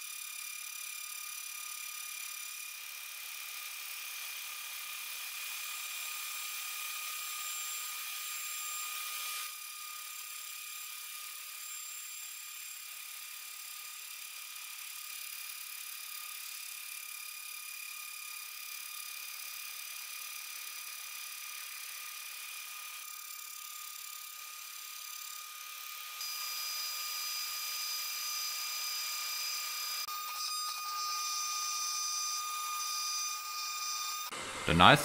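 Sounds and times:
milling machine spindle whining: 21.5s - 34.7s.

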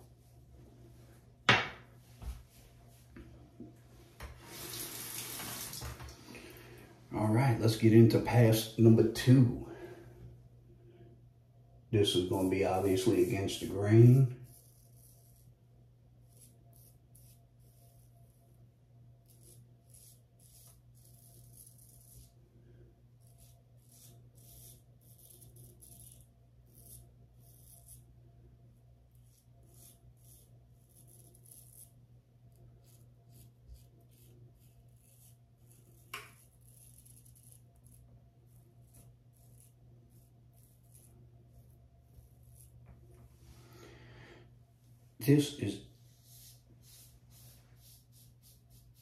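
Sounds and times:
steady low hum: 6.0s - 49.0s
razor scraping stubble: 12.0s - 15.6s, 16.2s - 18.4s, 19.2s - 22.4s, 23.1s - 28.1s, 29.1s - 43.2s.

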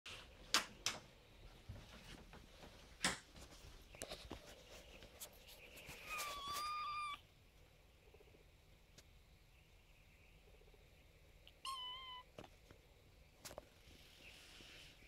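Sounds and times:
kitten meowing: 6.1s - 7.2s, 11.5s - 12.3s.

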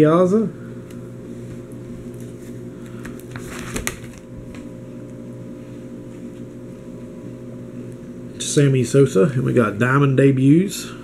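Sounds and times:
low electrical hum: 0.0s - 11.0s
plastic sleeves rustling: 1.4s - 4.7s.

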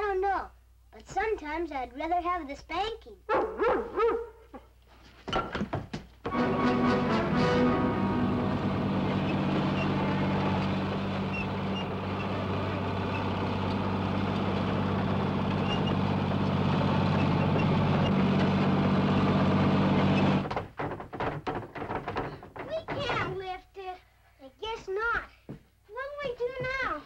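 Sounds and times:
bulldozer engine running: 6.3s - 20.9s.

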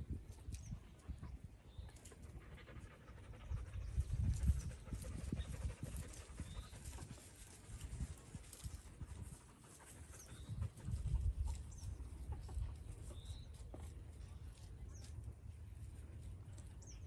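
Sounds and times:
chickens clucking softly: 8.7s - 15.4s.

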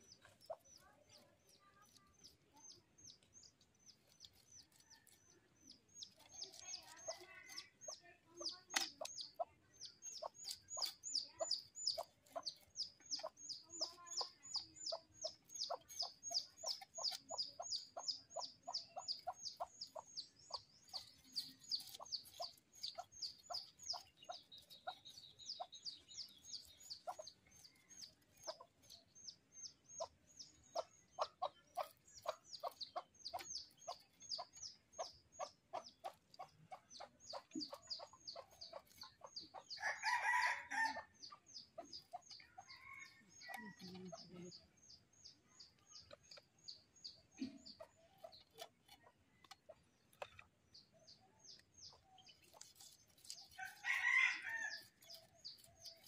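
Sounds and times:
knife scraping fish scales: 52.4s - 56.0s.

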